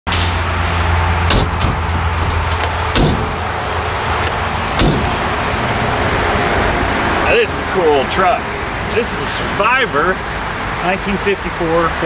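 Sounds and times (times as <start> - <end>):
steady low rumble: 0.1 - 10.8
steel door knocks: 1.3 - 3.4, 4.8 - 5.2.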